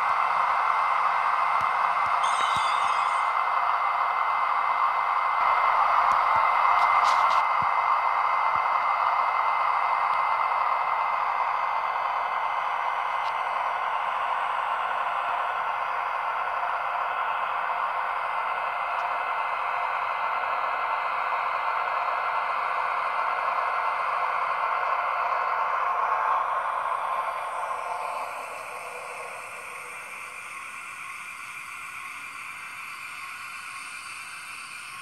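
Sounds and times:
faint high whine: 2.2s - 4.2s.

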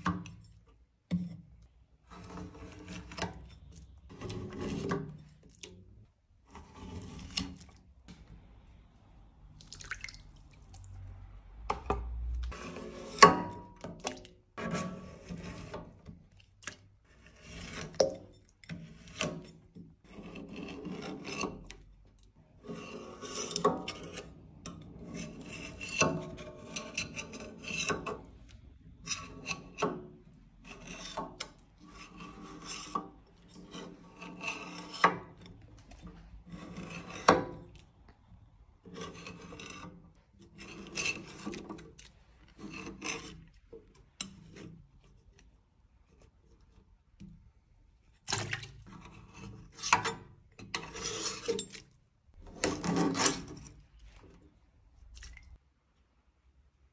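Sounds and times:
metal scraper rasping on wax: 0.2s - 5.5s, 6.4s - 7.8s, 14.6s - 16.2s, 16.8s - 21.8s, 22.6s - 37.8s, 38.8s - 45.1s, 48.8s - 53.9s.

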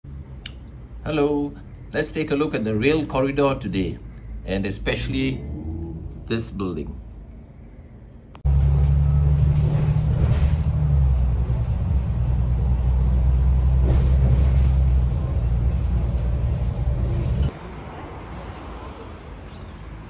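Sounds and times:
loud low rumble: 4.8s - 17.5s.

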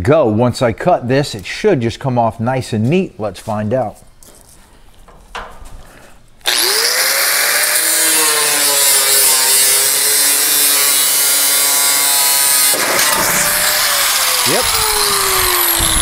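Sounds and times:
angle grinder cutting sheet steel: 6.4s - 16.0s.

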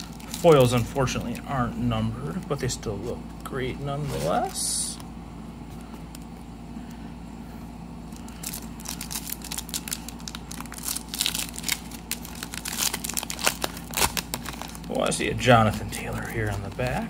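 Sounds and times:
foil wrapper crinkling: 0.0s - 5.1s, 8.1s - 17.0s.

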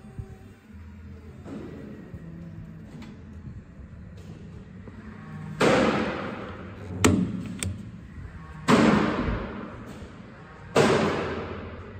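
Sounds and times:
loud bangs in reverberant room: 5.5s - 7.5s, 8.6s - 11.9s.

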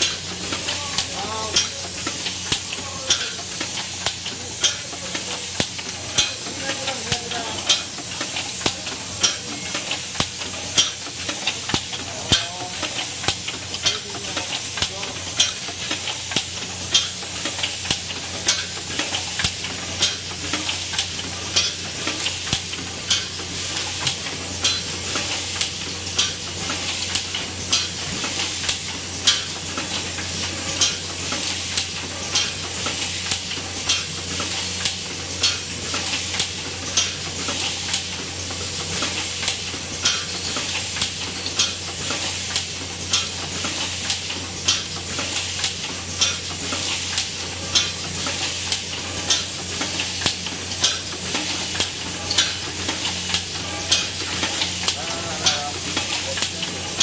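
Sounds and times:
machine hissing: 0.0s - 57.0s
sharp mechanical clicks and knocks: 0.0s - 57.0s.

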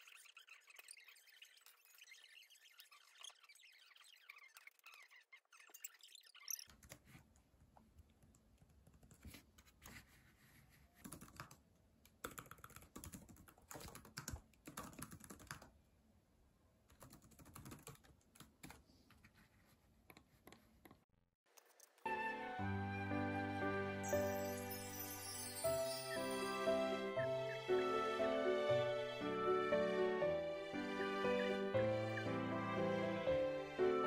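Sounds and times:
music: 22.0s - 34.0s.

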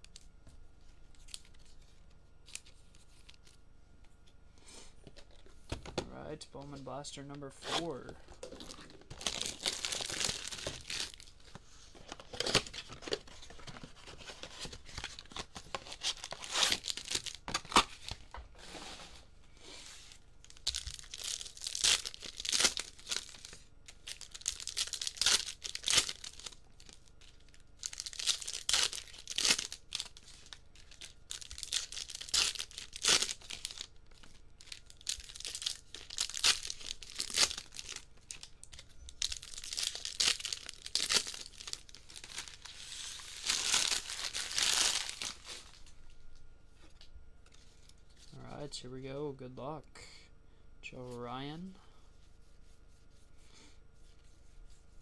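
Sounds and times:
wrappers tearing and crinkling: 7.2s - 18.3s, 20.0s - 45.9s.

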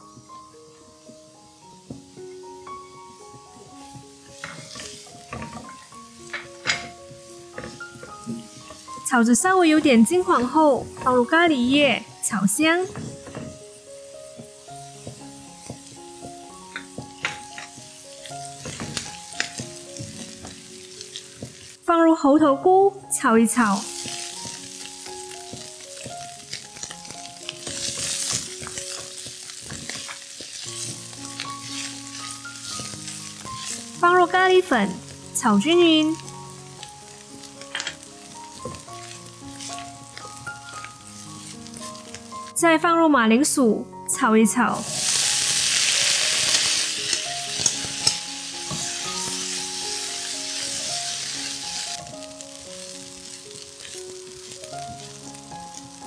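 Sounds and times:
mushroom sizzling in hot oil: 0.0s - 56.0s
spatula scraping a pan: 4.4s - 6.9s, 25.5s - 34.0s, 37.7s - 42.2s, 44.8s - 51.9s.

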